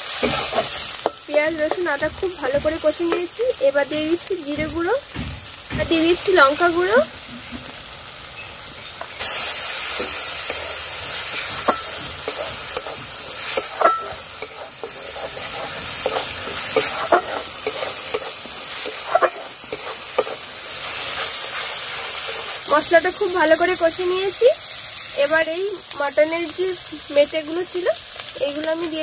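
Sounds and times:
metal spatula scraping a pan: 0:00.0 - 0:03.3, 0:09.2 - 0:22.8
food sizzling in hot oil: 0:00.0 - 0:29.0.

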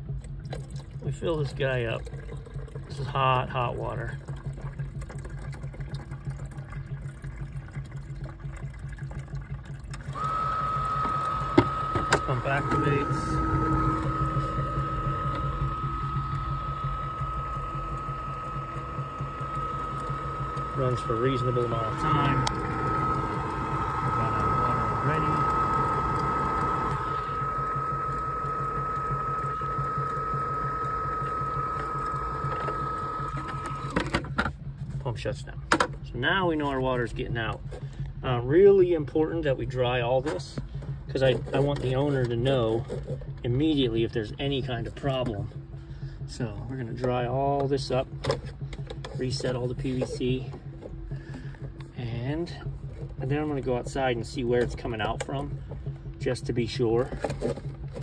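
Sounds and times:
pump motor whining: 0:00.0 - 0:58.0
water being poured: 0:00.1 - 0:33.9.

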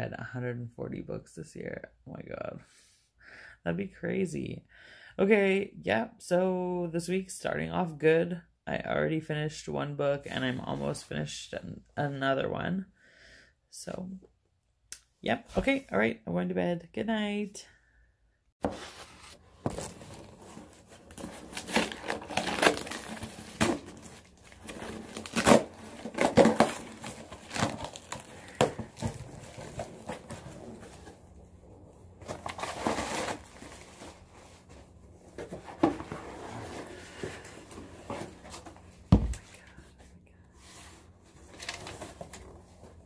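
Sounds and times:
paper packing crinkling: 0:18.6 - 0:31.3, 0:32.1 - 0:38.9, 0:41.4 - 0:42.8.

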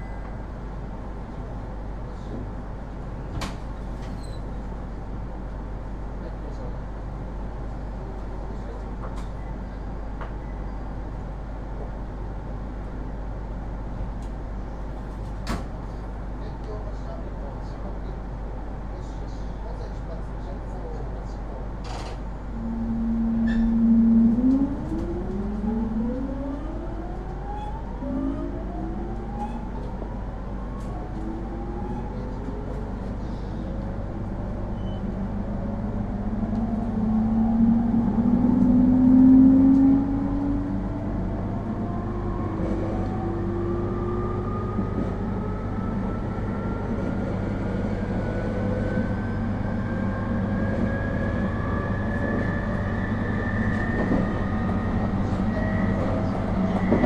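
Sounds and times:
train rail running noise: 0:00.0 - 0:57.0
electric train motor whine: 0:22.5 - 0:29.4.

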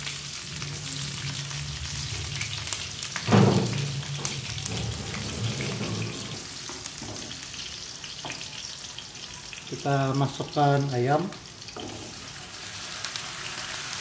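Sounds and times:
vegetables sizzling in hot oil: 0:00.0 - 0:14.0
loud thump: 0:03.3 - 0:04.0.

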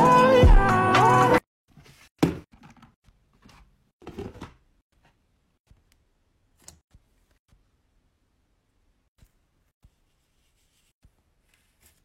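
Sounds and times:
container handling and scraping: 0:01.7 - 0:04.6.

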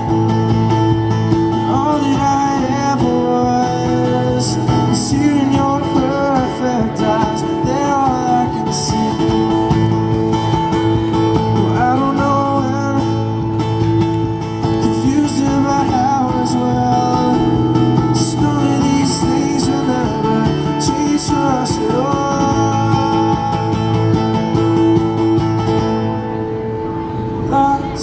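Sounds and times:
man singing: 0:00.0 - 0:10.0, 0:11.1 - 0:24.8, 0:27.4 - 0:28.0
acoustic guitar strumming: 0:00.0 - 0:28.0.

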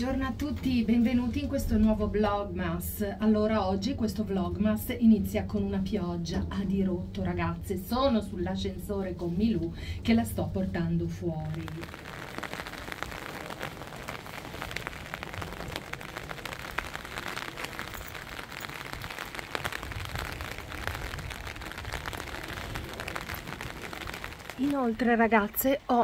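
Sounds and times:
heavy rain: 0:11.4 - 0:26.0
raindrops ticking: 0:11.4 - 0:26.0.

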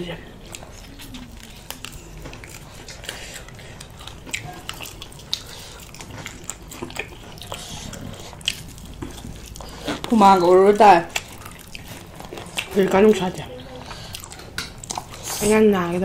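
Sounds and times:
people chewing chicken: 0:00.2 - 0:16.0.

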